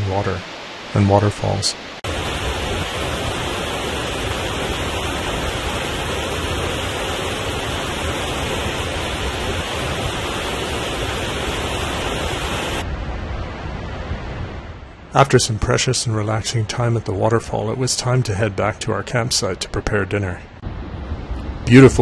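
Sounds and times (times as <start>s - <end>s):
waterfall pouring over rocks: 2.1s - 12.8s.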